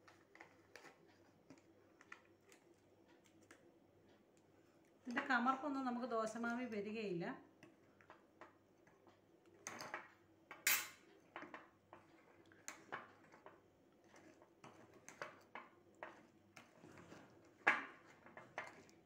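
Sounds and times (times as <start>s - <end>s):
metal spoon scraping a bowl: 12.1s - 19.0s.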